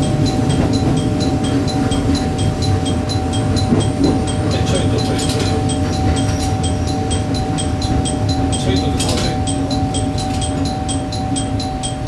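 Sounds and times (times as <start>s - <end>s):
faint high ticking: 0.0s - 12.0s
train engine hum: 0.0s - 12.0s
train running rumble: 0.0s - 12.0s.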